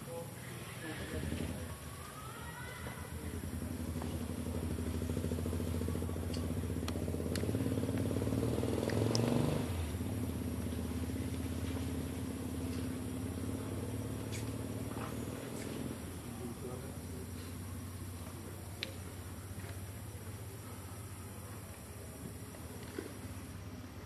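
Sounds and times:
low engine hum: 0.0s - 24.0s
faint sharp clicks: 6.2s - 8.1s, 8.8s - 9.3s, 18.8s - 19.0s.

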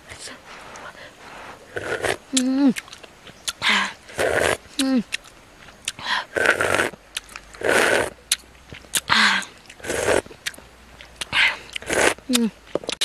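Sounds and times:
soup slurping: 1.7s - 4.8s, 5.9s - 8.4s, 9.0s - 10.3s, 11.7s - 12.4s
mouth clicks: 1.7s - 13.0s.

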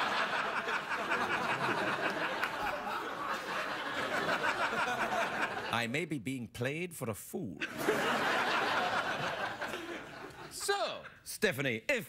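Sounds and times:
studio audience laughing: 0.0s - 5.9s, 7.6s - 11.0s
host speaking: 10.5s - 12.0s.

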